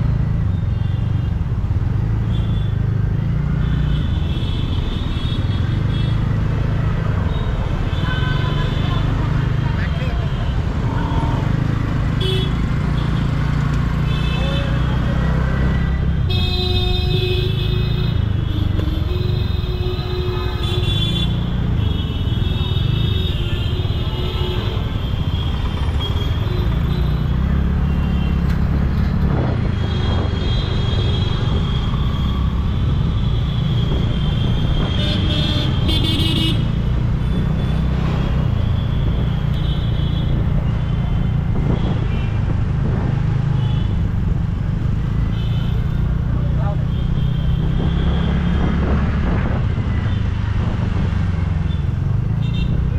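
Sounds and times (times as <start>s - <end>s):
street traffic rumble: 0.0s - 52.9s
vehicle horns tooting: 33.9s - 36.7s.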